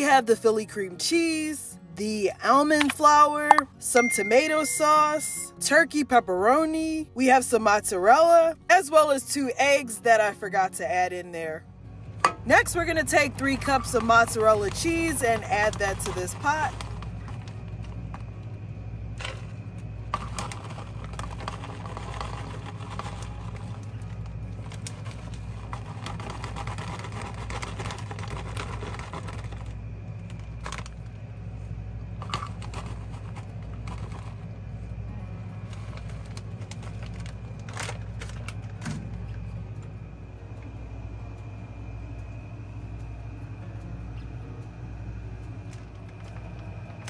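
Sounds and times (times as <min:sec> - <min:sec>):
steady low hum: 0:11.5 - 0:47.0
packaging rustling: 0:35.6 - 0:38.8.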